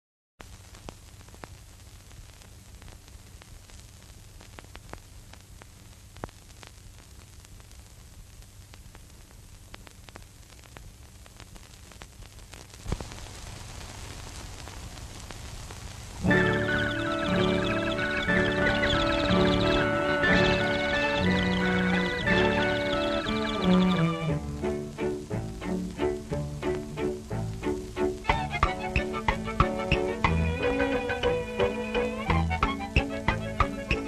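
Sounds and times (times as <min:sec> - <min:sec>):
film soundtrack hiss: 0:00.4 - 0:34.0
clicks and pops: 0:09.7 - 0:13.3.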